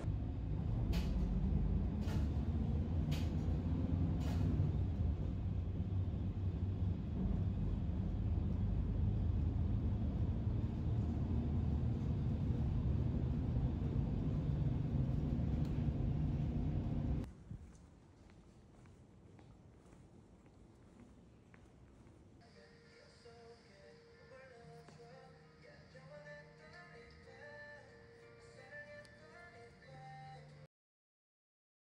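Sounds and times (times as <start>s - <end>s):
bus engine rumble: 0.0s - 17.3s.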